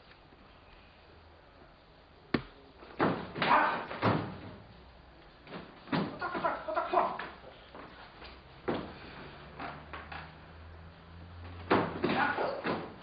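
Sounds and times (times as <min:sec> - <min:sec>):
thuds and slaps of karate movement: 0:02.4 - 0:04.6, 0:05.5 - 0:06.5, 0:08.6 - 0:09.0, 0:11.5 - 0:13.0.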